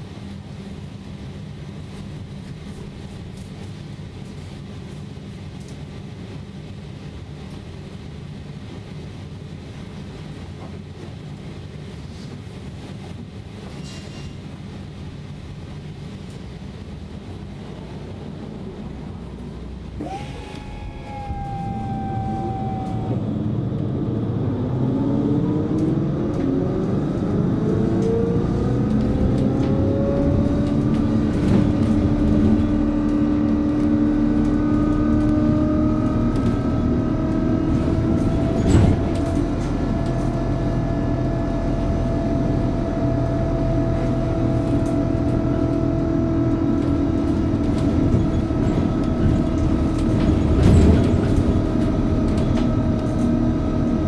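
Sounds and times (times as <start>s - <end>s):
road rumble: 0.0s - 54.0s
trolleybus electric motor whining: 19.8s - 54.0s.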